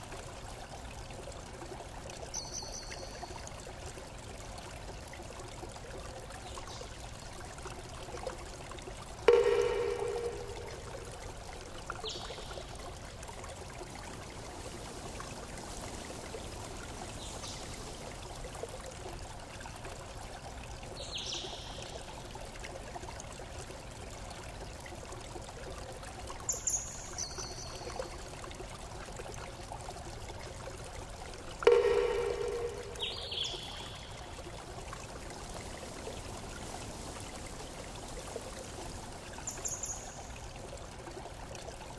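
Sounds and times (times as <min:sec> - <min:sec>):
flowing water: 0:00.0 - 0:41.9
loud ringing tone: 0:09.3 - 0:10.9, 0:31.7 - 0:33.2.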